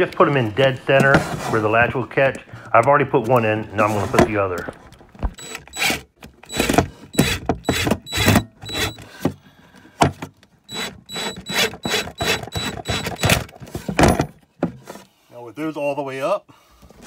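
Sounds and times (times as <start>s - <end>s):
drill motor whine: 5.4s - 9.0s, 10.7s - 13.3s.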